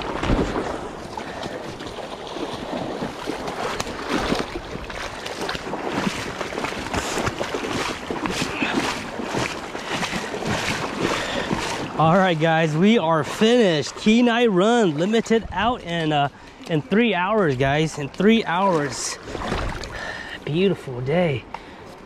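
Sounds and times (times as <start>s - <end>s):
river water rushing: 0.0s - 21.1s
water splashes: 0.0s - 22.0s.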